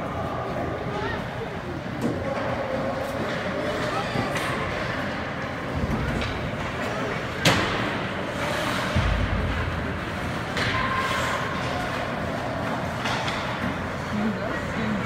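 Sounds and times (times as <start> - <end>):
arena noise: 0.0 - 15.0
hockey stick crack: 7.4 - 13.9.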